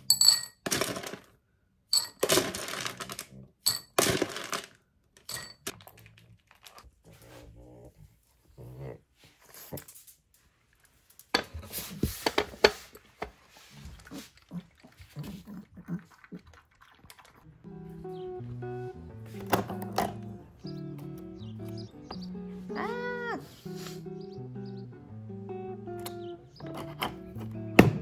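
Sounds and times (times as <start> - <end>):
kibble clattering into bowl: 2.0 - 6.8
dog eating noises: 5.6 - 20.7.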